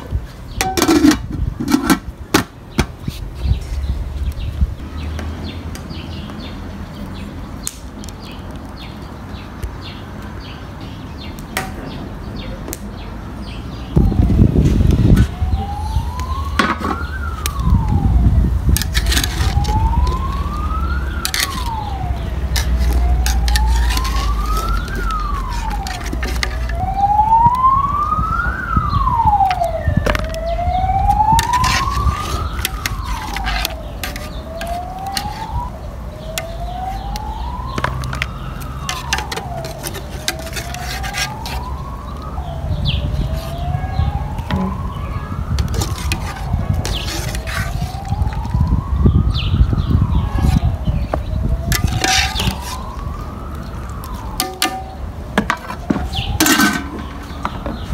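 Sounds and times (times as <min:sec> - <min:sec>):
wailing siren: 0:00.6 - 0:02.0, 0:13.9 - 0:57.9.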